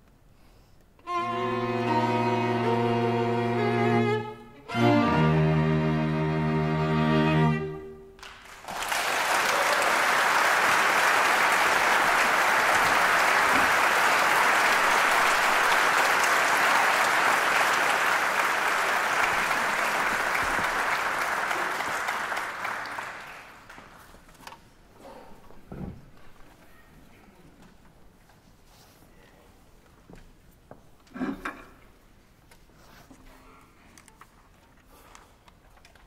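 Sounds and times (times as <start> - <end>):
string quartet chord: 1.0 - 8.1
audience applauding: 8.2 - 24.1.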